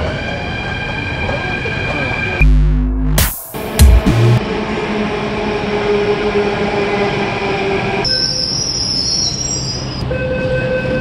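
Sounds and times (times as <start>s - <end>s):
wheels and brakes squealing: 8.0s - 10.0s.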